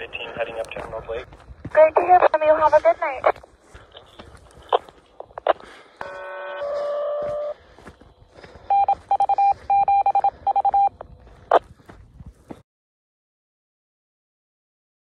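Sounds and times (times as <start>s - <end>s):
radio click: 0.1s - 1.0s, 1.8s - 6.2s
rapid short beeps: 8.7s - 11.0s.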